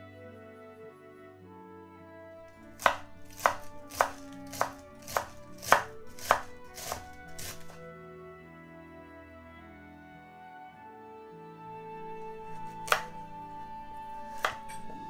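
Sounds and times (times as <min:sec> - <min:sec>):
soft background music: 0:00.0 - 0:15.0
knife chopping on wooden board: 0:02.7 - 0:07.8, 0:12.6 - 0:13.2, 0:14.2 - 0:15.0.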